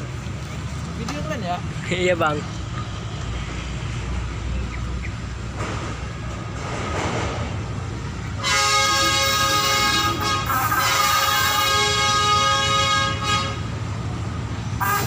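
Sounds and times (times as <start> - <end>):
locomotive engine rumble: 0.0 - 15.0
locomotive horn blast: 8.4 - 13.8, 14.8 - 15.0.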